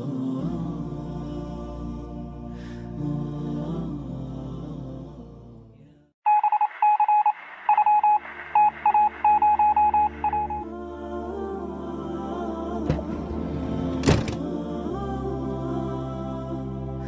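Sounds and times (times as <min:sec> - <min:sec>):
electronic beeps like morse code: 0:06.3 - 0:10.6.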